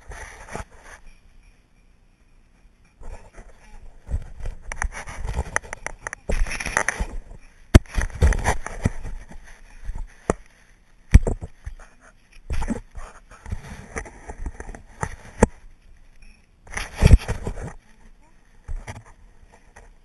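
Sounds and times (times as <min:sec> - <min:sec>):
camera knocking and scuffing: 0:03.1 - 0:10.5, 0:11.1 - 0:11.8, 0:12.4 - 0:15.6, 0:16.7 - 0:17.8.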